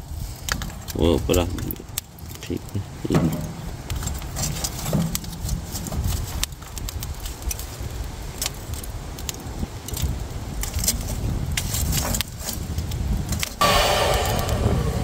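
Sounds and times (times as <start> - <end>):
wind rumble on microphone: 0.0 - 15.0
charcoal clinking and clattering: 0.4 - 7.6.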